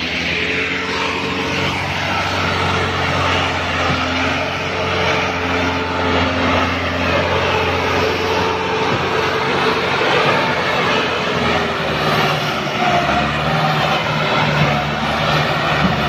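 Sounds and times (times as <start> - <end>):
tractor diesel engine under load: 0.0 - 16.0.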